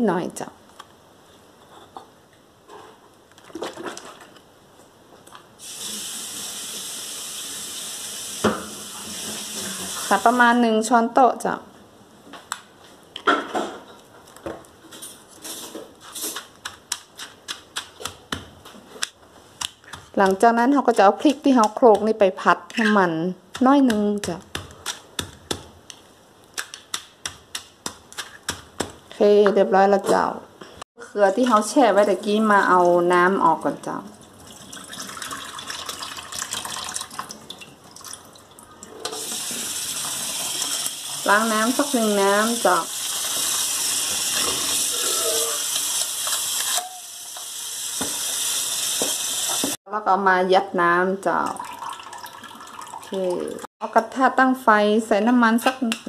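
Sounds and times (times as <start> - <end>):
stone pestle knocking mortar: 16.7 - 18.6, 23.5 - 25.7
tap water running into bowl: 34.2 - 38.2, 42.5 - 44.9, 51.4 - 53.3
water dripping: 34.2 - 38.9, 51.3 - 53.7.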